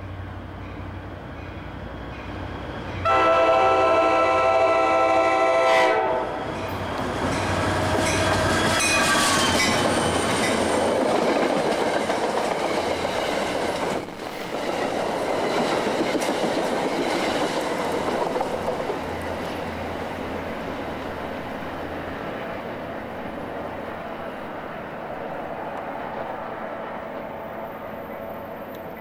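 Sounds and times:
train rumbling and rattling past: 0.0 - 29.0
train horn: 3.0 - 6.5.

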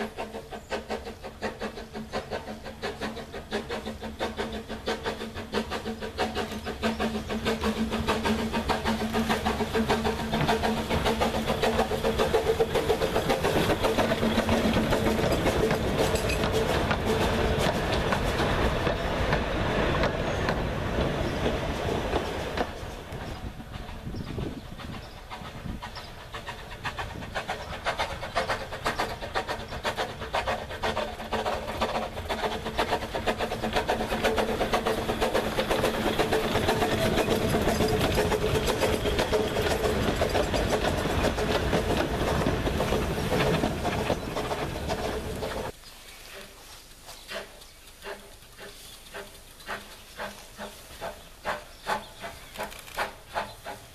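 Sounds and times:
wheels clattering over rail joints: 0.0 - 46.5, 47.1 - 53.9
steam train passing: 0.0 - 53.9.

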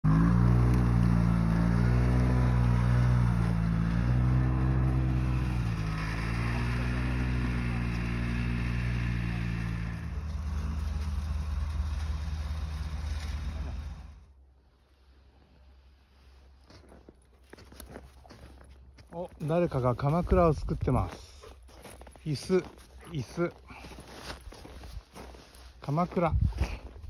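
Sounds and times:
snowmobile engines revving: 0.0 - 14.3
excavator engine rumbling: 0.0 - 14.5.

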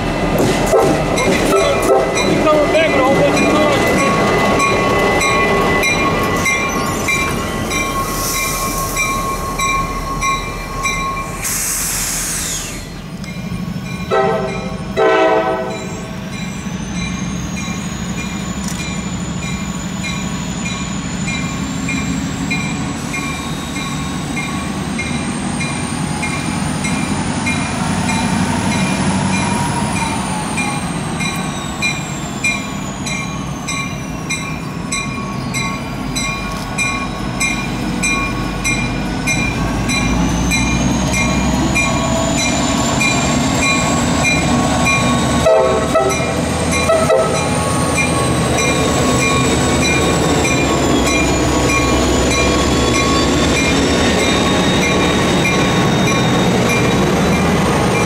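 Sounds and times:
diesel locomotive passing: 0.0 - 58.0
freight train rumbling: 0.0 - 58.0
train horn blasts: 0.7 - 2.2, 14.1 - 15.9, 45.4 - 47.5
high wheel squeal: 1.2 - 13.2, 15.7 - 27.3, 28.0 - 36.2, 40.1 - 58.0.

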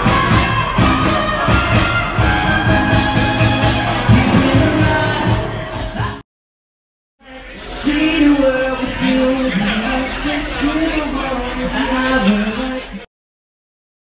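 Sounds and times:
live band playing guitars: 0.0 - 6.2.

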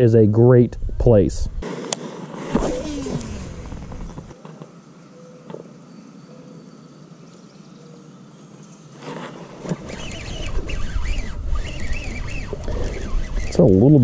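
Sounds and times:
fishing line reeled in: 2.5 - 4.1, 9.6 - 13.8
fishing reel spool whirring: 2.6 - 4.4, 9.5 - 14.0.

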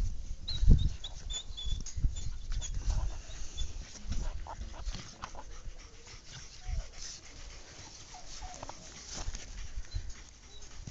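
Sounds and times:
puppies whining: 7.9 - 9.1, 9.7 - 10.9.

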